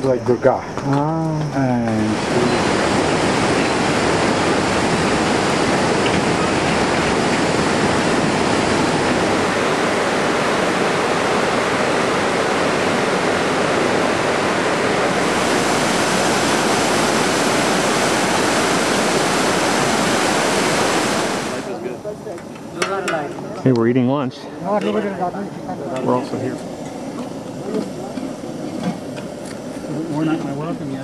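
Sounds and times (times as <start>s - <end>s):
waterfall and stream rushing: 1.1s - 22.3s.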